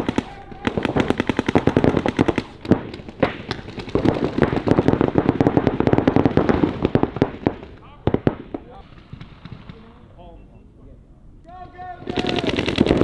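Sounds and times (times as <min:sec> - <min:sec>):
paintball markers firing: 0:12.1 - 0:13.0.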